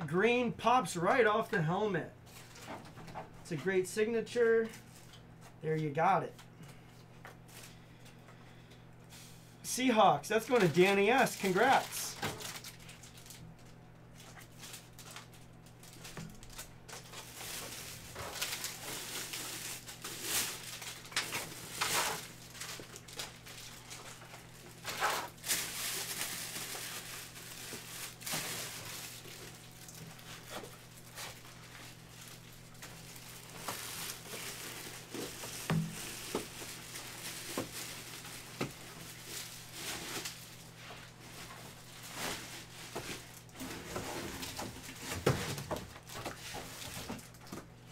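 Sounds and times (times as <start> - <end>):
steady low hum: 0.0 - 46.7
packaging rustling and crinkling: 10.4 - 47.9.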